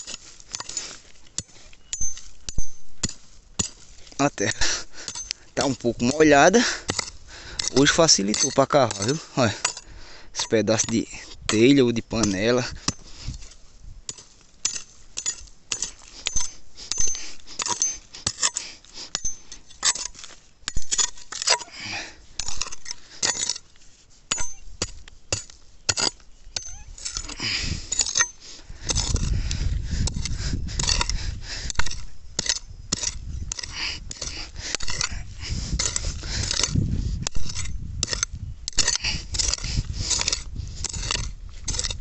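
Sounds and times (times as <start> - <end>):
hoe chopping stony earth: 0.0 - 42.0
metal ringing on stone: 1.4 - 13.0, 14.1 - 21.7, 24.3 - 29.3.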